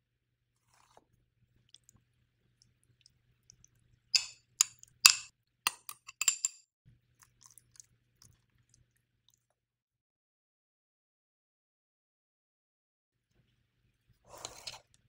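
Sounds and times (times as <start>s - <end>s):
utensils clinking against dishware: 4.2s - 6.6s.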